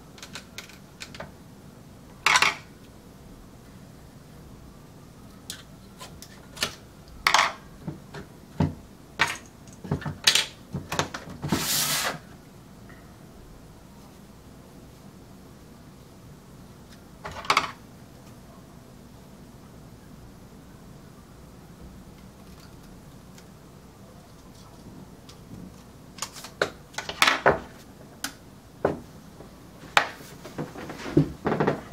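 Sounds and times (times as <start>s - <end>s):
clicks and knocks of handling: 0.2s - 1.3s.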